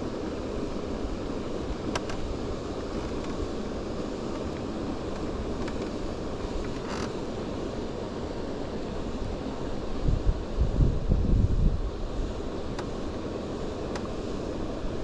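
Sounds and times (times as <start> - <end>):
wind buffeting microphone: 9.3 - 12.4.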